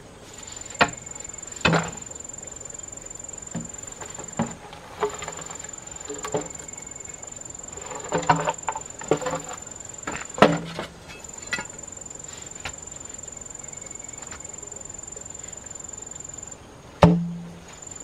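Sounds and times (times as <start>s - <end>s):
high-pitched insect drone: 0.5s - 4.5s, 5.2s - 10.5s, 11.1s - 16.6s, 17.7s - 18.0s
bamboo poles knocking: 0.8s - 2.1s, 17.0s - 17.6s.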